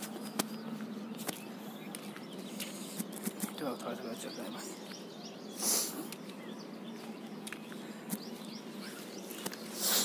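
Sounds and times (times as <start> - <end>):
faint bird chirps: 0.0 - 10.0.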